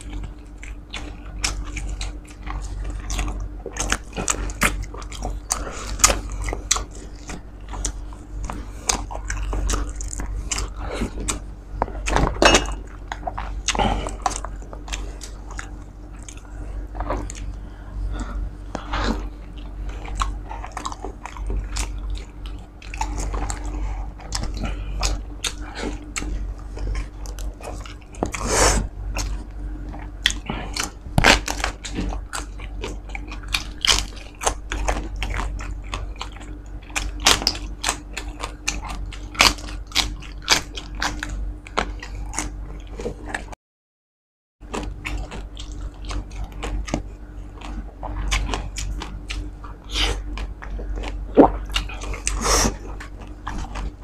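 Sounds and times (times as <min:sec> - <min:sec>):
crunching and chewing: 0:00.0 - 0:43.6, 0:44.6 - 0:54.0
steady low hum: 0:00.0 - 0:43.6, 0:44.6 - 0:54.0.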